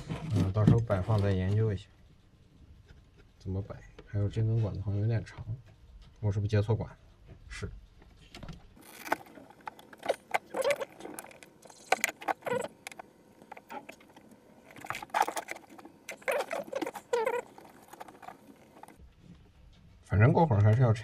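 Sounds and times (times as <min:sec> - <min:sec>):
plastic tubing clicking and rubbing: 0:08.0 - 0:19.5.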